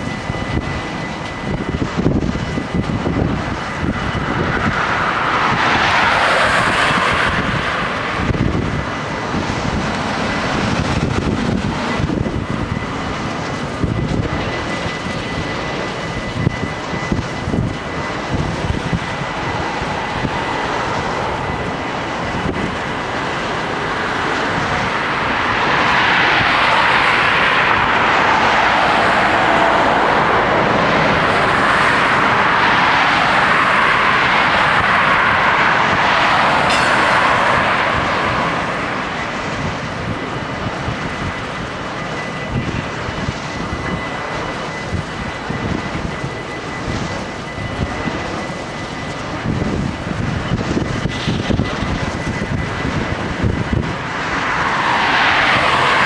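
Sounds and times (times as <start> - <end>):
freight train rumbling: 0.0 - 56.0.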